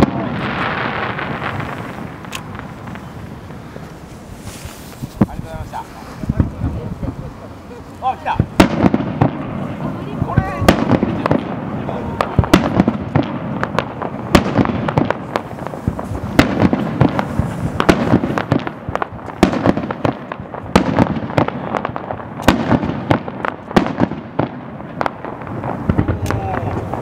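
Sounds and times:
firework shells bursting: 0.0 - 27.0.

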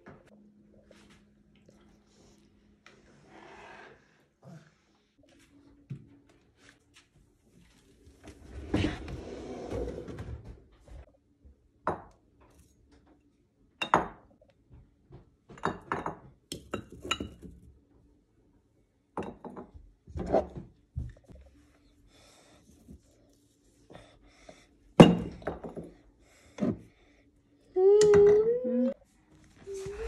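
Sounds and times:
kitchen drawer sliding open: 8.5 - 10.4.

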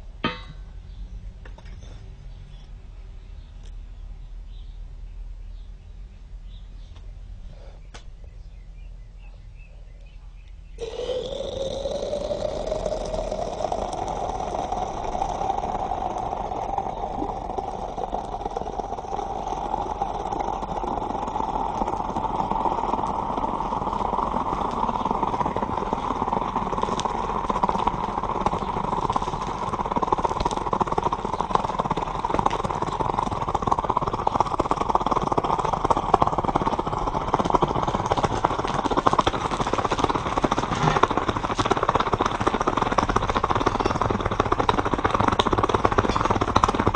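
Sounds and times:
liquid boiling and spitting: 10.8 - 46.9.

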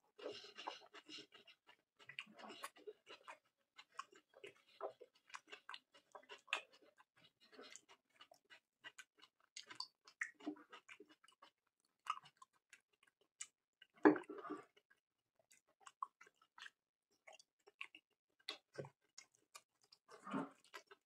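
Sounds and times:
person chewing food: 0.1 - 21.0
wet mouth clicks and smacks: 7.7 - 10.5, 15.5 - 20.0.

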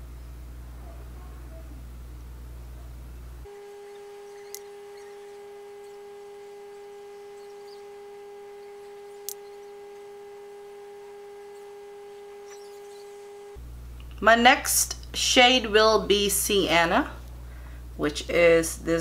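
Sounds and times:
low electrical hum: 0.0 - 19.0
steady electronic tone: 3.5 - 13.6.

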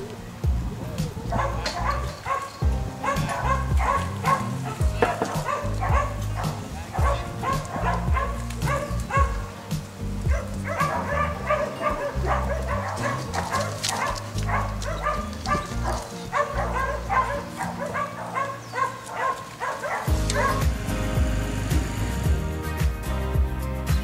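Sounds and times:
background music: 0.0 - 24.0
dog barking: 1.2 - 9.5, 10.3 - 21.0.

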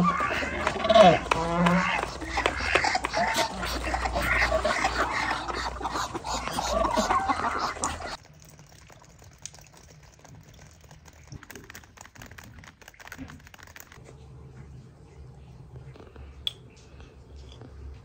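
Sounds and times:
rain pattering on plants: 7.1 - 14.1
low steady hum: 14.0 - 18.0.

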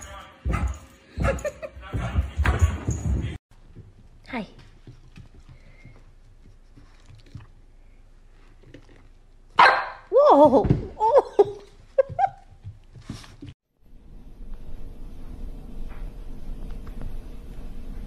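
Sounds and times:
puppy barking: 9.6 - 10.1.

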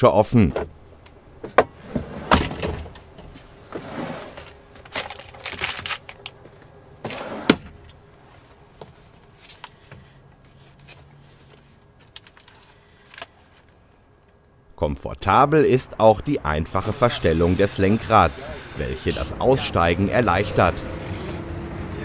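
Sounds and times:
plastic drawers sliding: 1.8 - 3.0, 3.7 - 6.0, 7.0 - 7.7.

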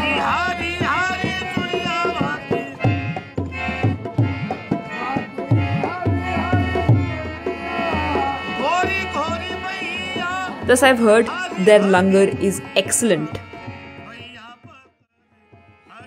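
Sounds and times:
percussion beat: 0.0 - 14.8
harmonium: 0.0 - 16.0
man singing ornamented lines: 5.0 - 13.5.

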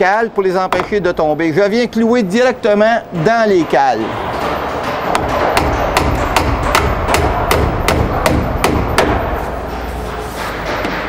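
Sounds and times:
hammer striking nail into wood: 5.2 - 9.3.

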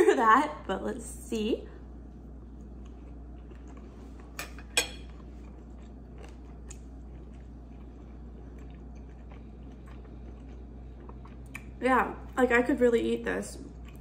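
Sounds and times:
steady low hum: 0.0 - 14.0
steak being chewed: 2.4 - 11.8, 13.7 - 14.0.

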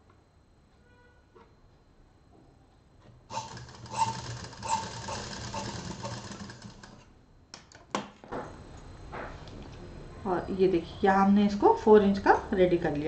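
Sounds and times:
sewing machine stitching: 3.3 - 7.1.

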